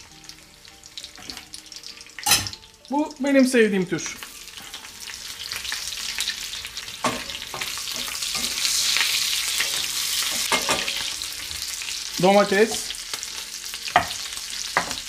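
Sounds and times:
meat sizzling in butter: 0:00.0 - 0:15.0.

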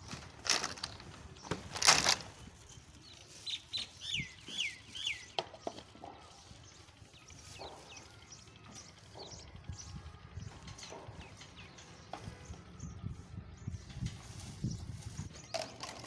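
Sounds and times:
handling noise: 0:00.0 - 0:03.1
bird chirping: 0:02.3 - 0:15.7.

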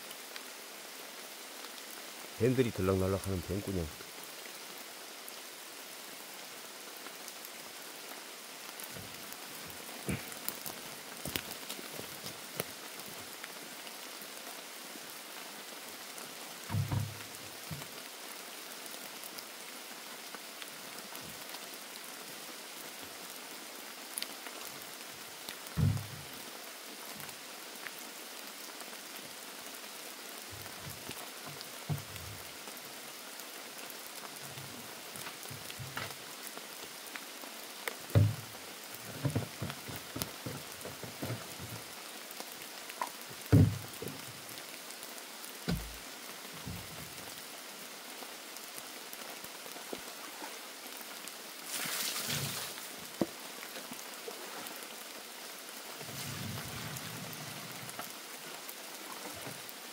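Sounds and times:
steady rain falling: 0:00.0 - 0:59.9
dull low thumps: 0:25.8 - 0:26.3.

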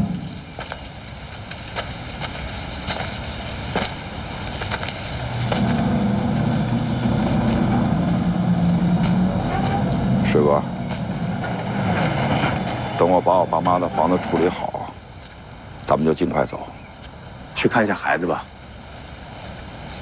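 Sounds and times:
footsteps on pavement: 0:01.5 - 0:06.0
low drone shifting pitch: 0:05.2 - 0:15.0.

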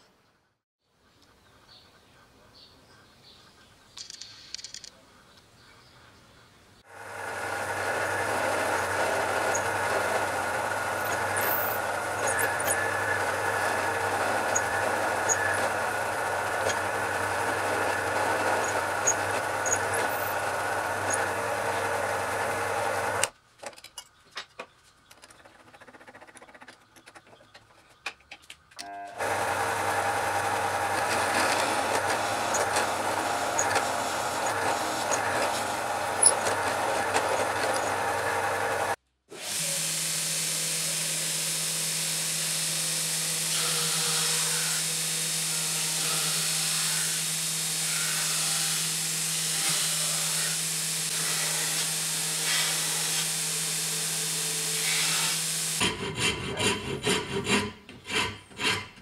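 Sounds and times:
small clicks of drill bit: 0:04.0 - 0:05.0
belt sander humming: 0:06.9 - 0:23.4, 0:29.1 - 0:55.8
drill press motor drilling wood: 0:06.9 - 0:23.4, 0:29.2 - 0:55.8.

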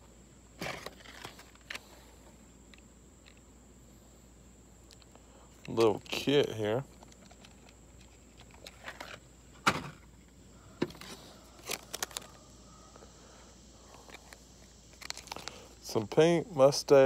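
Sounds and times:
plastic packaging clicks and rustles: 0:10.9 - 0:12.4, 0:14.1 - 0:15.6.

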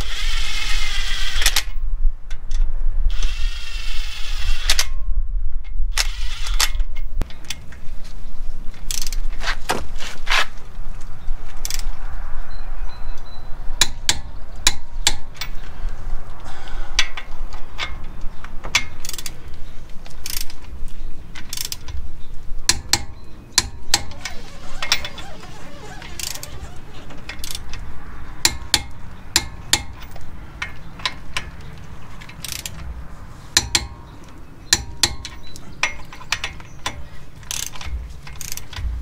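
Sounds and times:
impact wrench whirring: 0:23.6 - 0:27.7.

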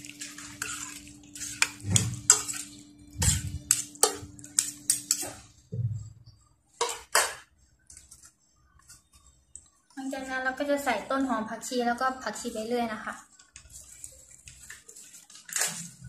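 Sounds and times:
spoons scraping metal frying pan: 0:00.0 - 0:05.6, 0:13.6 - 0:16.0
steady low hum: 0:00.0 - 0:06.7.

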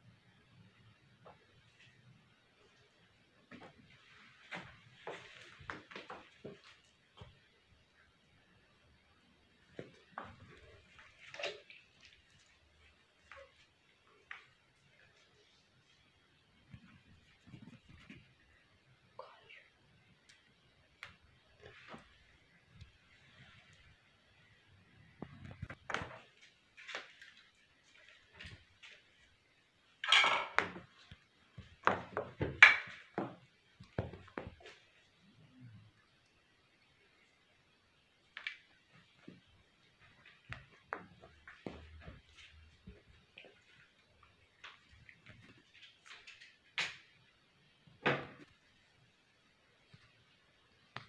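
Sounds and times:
soft taps and rustles: 0:03.4 - 0:07.6, 0:16.6 - 0:18.6, 0:25.1 - 0:29.4, 0:30.6 - 0:35.2, 0:38.2 - 0:47.2.

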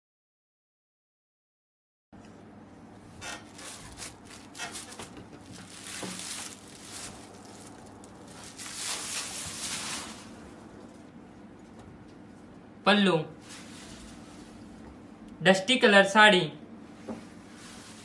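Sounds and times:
fabric rustling and swishing: 0:03.4 - 0:10.4, 0:13.4 - 0:14.6, 0:17.3 - 0:18.0.

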